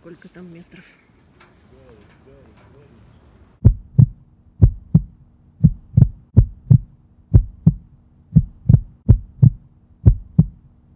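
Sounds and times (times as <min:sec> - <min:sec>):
faint steady hum: 0:00.0 - 0:10.9
heartbeat thumps: 0:03.6 - 0:10.7.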